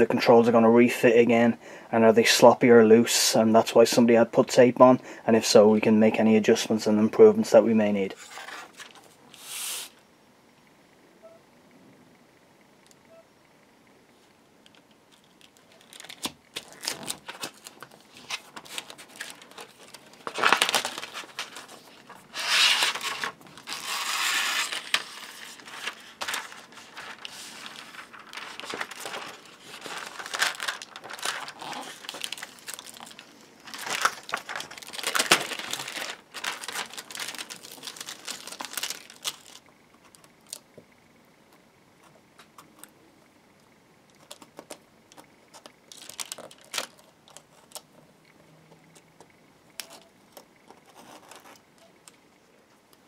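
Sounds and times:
foil tape crinkling and tearing: 0:15.1 - 0:40.6, 0:44.2 - 0:47.9.

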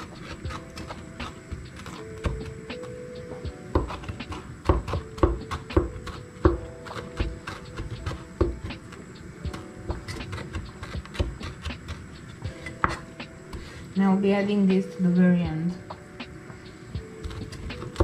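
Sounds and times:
knife chopping on cutting board: 0:03.8 - 0:08.9, 0:09.5 - 0:13.7, 0:17.2 - 0:18.0.

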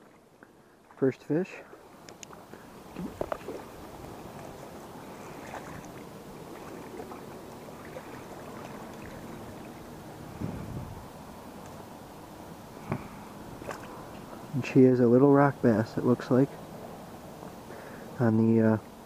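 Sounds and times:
water rushing over spillway: 0:02.9 - 0:10.2.

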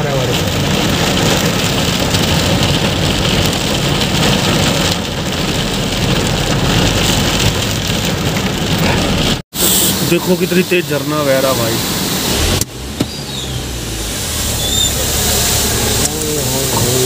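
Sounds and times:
heavy rain: 0:00.0 - 0:17.0
low vehicle rumble: 0:00.0 - 0:17.0.

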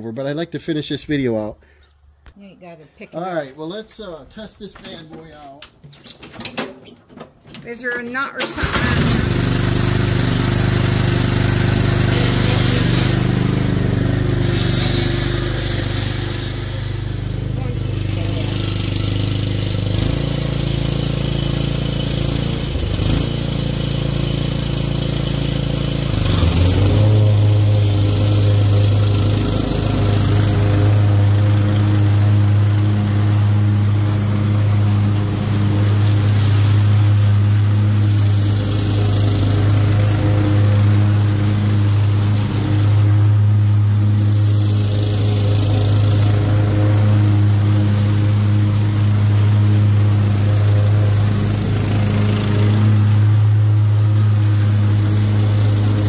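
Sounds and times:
riding lawn mower engine running: 0:07.7 - 0:56.0.

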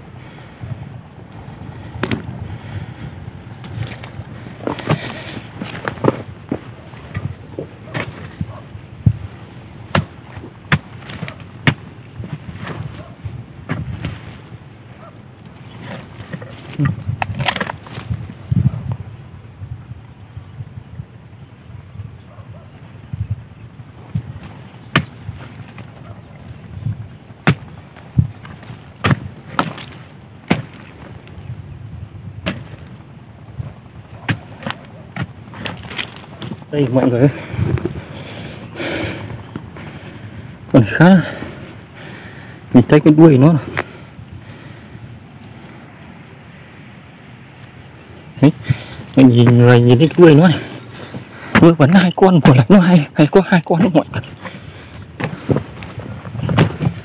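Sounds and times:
earth crumbling: 0:01.4 - 0:19.0, 0:23.9 - 0:44.7, 0:48.4 - 0:57.0
spade chopping into clay: 0:02.0 - 0:02.3, 0:09.9 - 0:13.0, 0:24.9 - 0:25.5, 0:27.4 - 0:30.9, 0:32.4 - 0:32.9, 0:34.2 - 0:36.2
metal bar striking soil: 0:03.6 - 0:08.4, 0:09.9 - 0:13.1, 0:27.4 - 0:31.1, 0:32.4 - 0:33.0.

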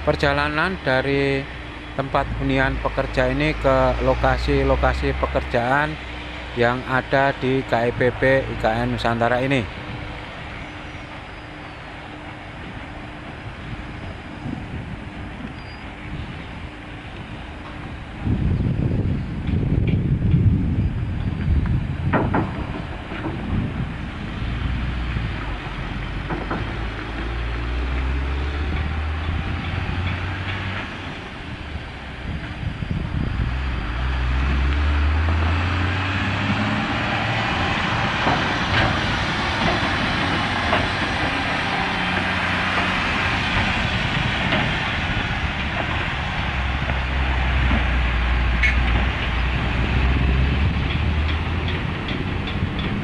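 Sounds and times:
heavy vehicle engine rumble: 0:00.0 - 0:53.0
road noise: 0:00.0 - 0:53.0.

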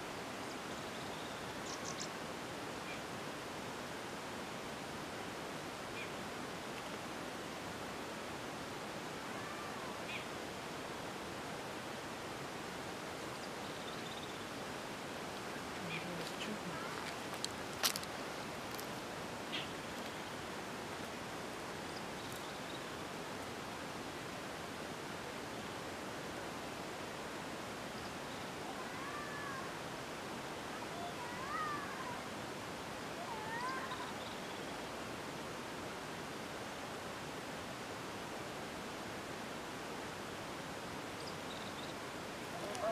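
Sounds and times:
steady outdoor hiss: 0:00.0 - 0:42.9
animal calls rising and falling: 0:42.5 - 0:42.9.

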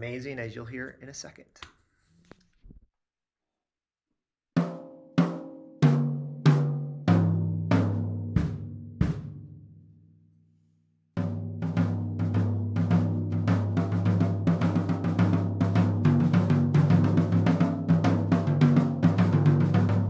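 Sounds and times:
drum kit beat: 0:04.6 - 0:09.5, 0:11.2 - 0:20.0.

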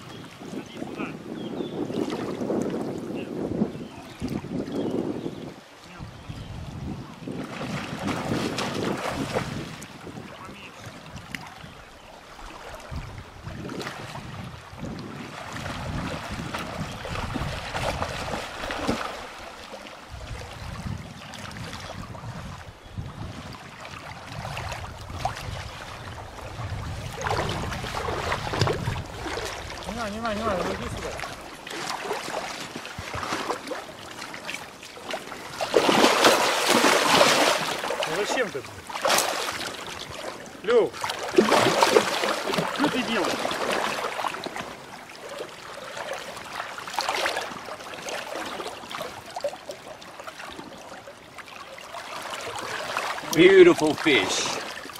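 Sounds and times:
wind buffeting microphone: 0:00.0 - 0:33.7
river water rushing: 0:07.4 - 0:22.1, 0:25.7 - 0:54.9
fish splashing: 0:15.3 - 0:20.5, 0:27.1 - 0:54.9.

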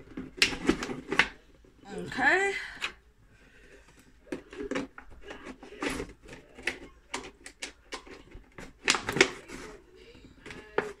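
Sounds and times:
plastic bottle crackling and clicking: 0:00.0 - 0:01.4, 0:04.2 - 0:09.7.

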